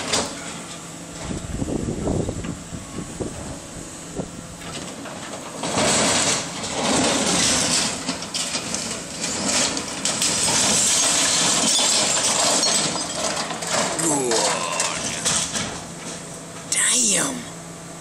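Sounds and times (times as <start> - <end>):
masonry and rubble crashing down: 4.8 - 16.2.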